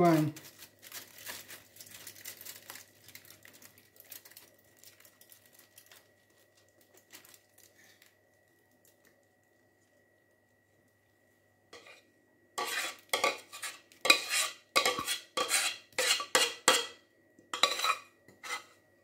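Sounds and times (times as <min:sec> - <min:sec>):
aluminium foil crinkling: 0:00.0 - 0:09.6.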